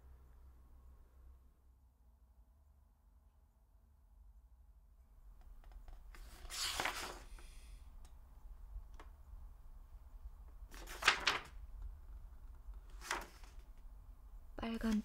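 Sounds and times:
book pages turning: 0:05.6 - 0:07.6, 0:10.7 - 0:11.6, 0:12.5 - 0:13.8.

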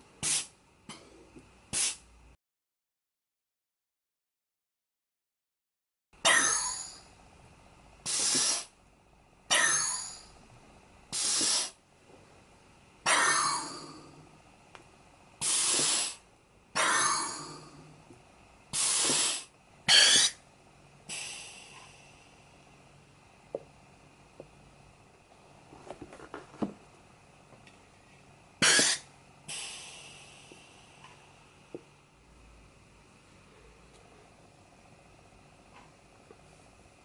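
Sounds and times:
compressed air hissing: 0:00.2 - 0:00.6, 0:01.7 - 0:02.1, 0:08.0 - 0:08.8, 0:11.1 - 0:11.8, 0:15.4 - 0:17.5, 0:18.7 - 0:20.4, 0:21.0 - 0:22.4, 0:28.6 - 0:31.0.

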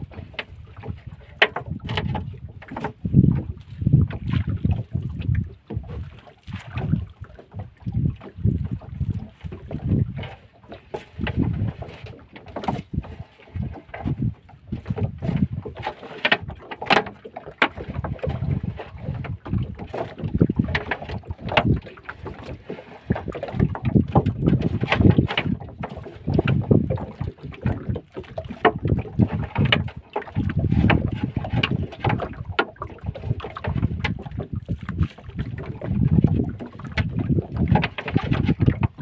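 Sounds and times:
wind gusting on microphone: 0:00.0 - 0:10.4, 0:11.1 - 0:15.9, 0:17.8 - 0:39.0
fishing net hauled knocks splashes: 0:00.0 - 0:39.0
water slapping against boat: 0:00.0 - 0:39.0.

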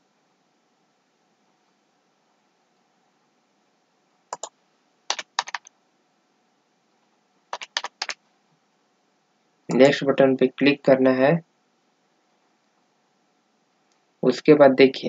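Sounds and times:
computer keyboard keystrokes: 0:04.3 - 0:04.5, 0:05.1 - 0:05.7, 0:07.5 - 0:08.2.

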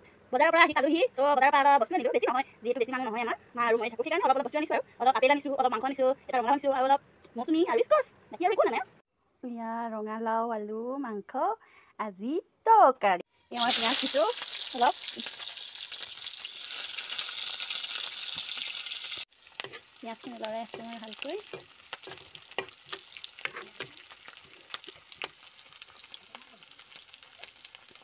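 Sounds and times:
onions sizzling in oil: 0:13.5 - 0:28.0
ladle scraping a wok: 0:19.1 - 0:20.0, 0:20.7 - 0:26.1.

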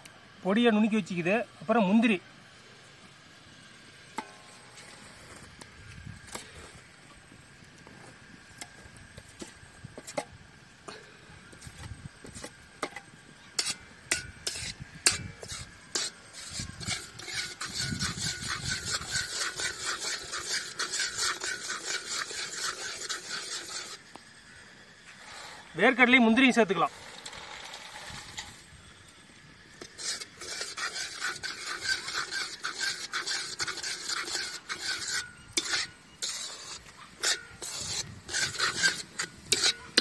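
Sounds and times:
fork stirring in pan: 0:13.6 - 0:24.0, 0:29.8 - 0:40.0.

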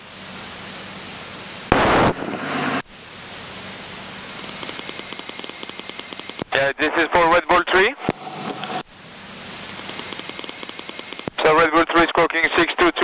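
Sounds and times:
radio static hissing: 0:01.7 - 0:13.0
faint rapid ticking: 0:04.4 - 0:06.5, 0:09.7 - 0:11.3.

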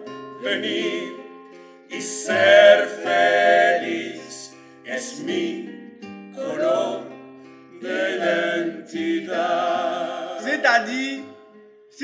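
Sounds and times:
person singing: 0:01.9 - 0:03.4.

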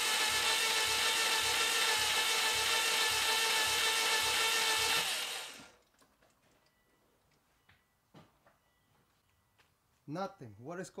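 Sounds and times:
engine cranking on starter motor: 0:00.0 - 0:05.8.

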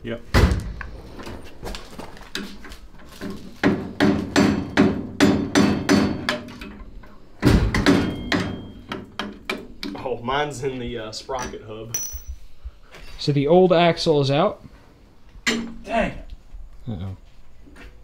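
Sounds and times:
hammer striking metal axle: 0:11.4 - 0:12.5.

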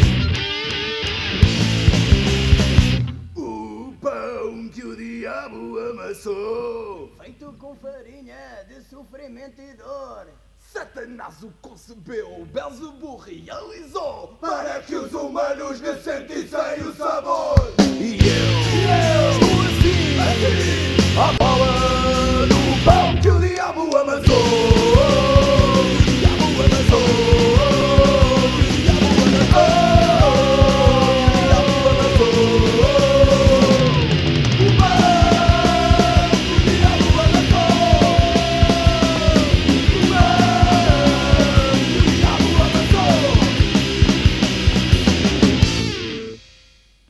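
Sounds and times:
punk rock band playing: 0:00.0 - 0:03.3, 0:17.6 - 0:23.6, 0:24.2 - 0:46.7.

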